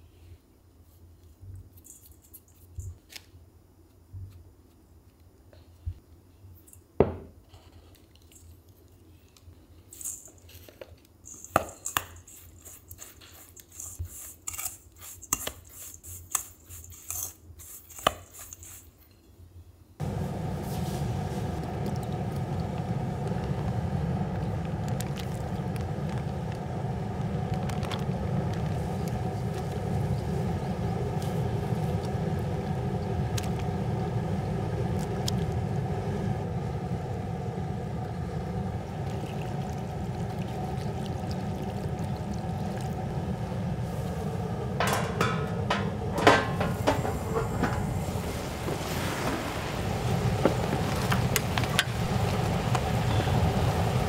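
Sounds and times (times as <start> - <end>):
steady rumble with low hum: 20.0 - 54.0.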